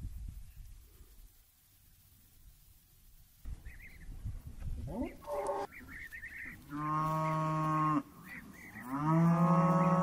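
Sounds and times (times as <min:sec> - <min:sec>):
cows mooing: 0:06.7 - 0:08.1, 0:08.7 - 0:10.0.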